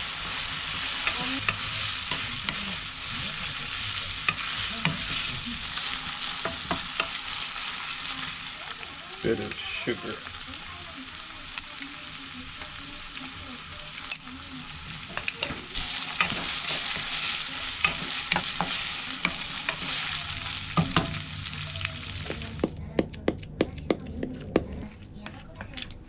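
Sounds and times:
spatula scraping pan: 0.0 - 8.5, 15.0 - 21.2
meat sizzling in frying pan: 0.0 - 22.7.

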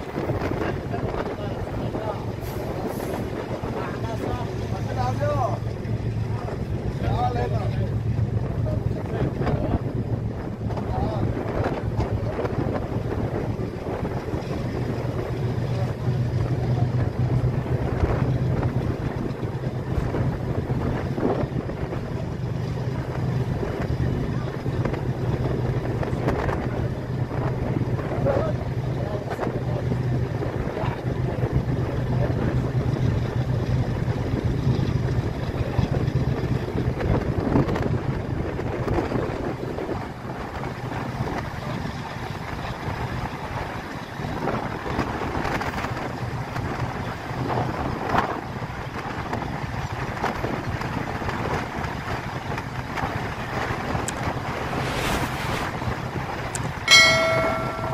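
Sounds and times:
train wheels rumbling on track: 0.0 - 57.9
wind buffeting microphone: 0.0 - 57.9
low hum: 53.7 - 57.9.

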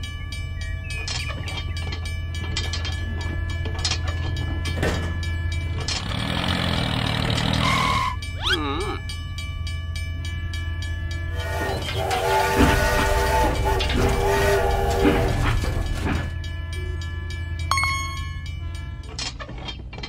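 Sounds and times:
toy train motor hum: 5.8 - 8.3.

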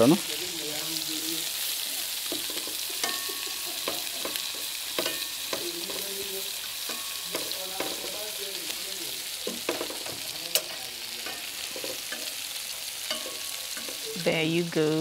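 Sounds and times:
food sizzling in a pan: 0.0 - 15.0
spatula clicking against pan: 2.3 - 6.1.

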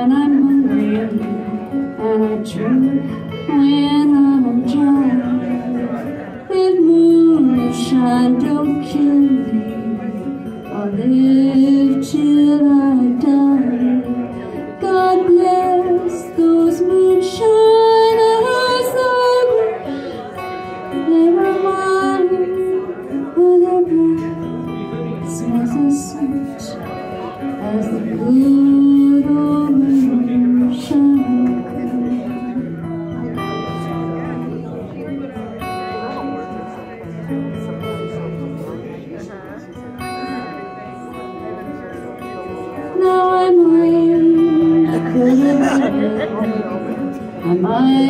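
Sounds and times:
woman singing: 0.0 - 26.8, 27.4 - 32.9, 42.8 - 48.0
acoustic guitar: 0.0 - 48.0.

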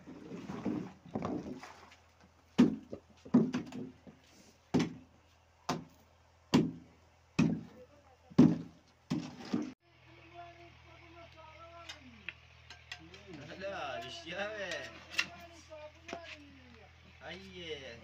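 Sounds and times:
dull knocks: 2.6 - 5.1, 6.5 - 7.8, 8.4 - 9.7.

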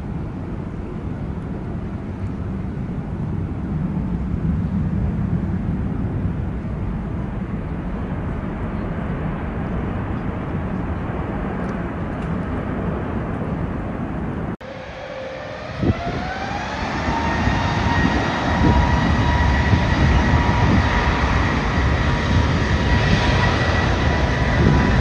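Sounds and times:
jet engines rumbling: 0.0 - 25.0.

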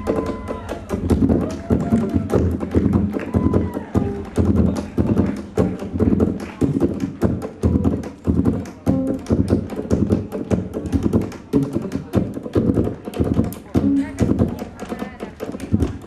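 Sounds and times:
heavy percussion beat: 0.0 - 16.0
live band music: 0.0 - 16.0.

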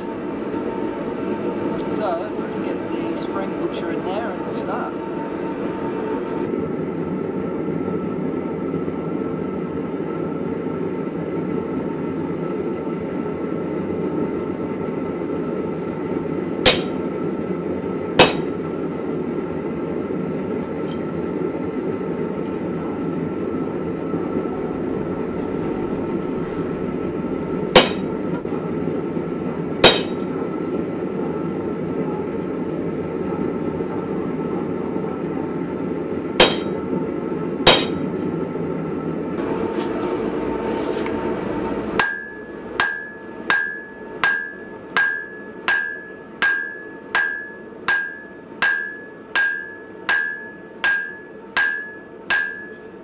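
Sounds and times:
hammer striking hot steel on anvil: 16.6 - 17.2, 18.2 - 18.8, 27.6 - 28.5, 29.8 - 30.5, 36.4 - 36.9, 37.6 - 38.3, 42.0 - 53.0
low rushing noise: 21.9 - 31.9.

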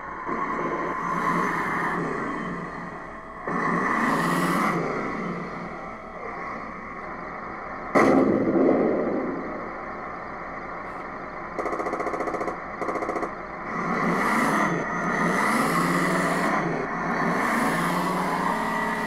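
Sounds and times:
simulated tank engine running: 0.0 - 19.0
simulated cannon shot: 7.9 - 9.6
simulated machine-gun bursts: 11.6 - 13.4.

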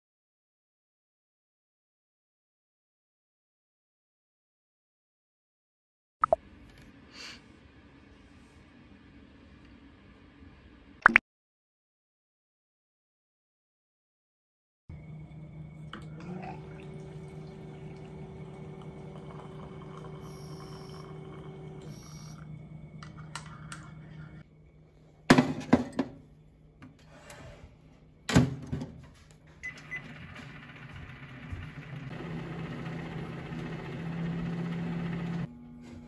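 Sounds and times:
microwave oven running: 14.9 - 24.7, 28.2 - 36.0
mechanical hum: 14.9 - 36.0.

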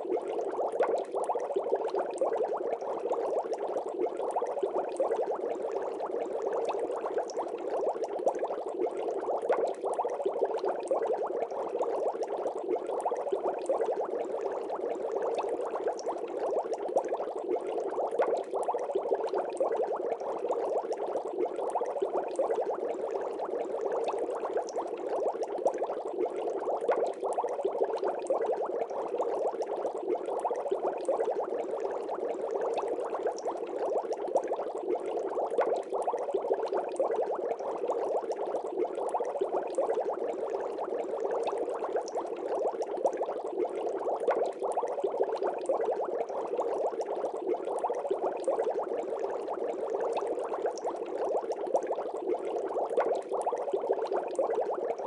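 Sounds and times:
aquarium water bubbling: 0.0 - 55.0.

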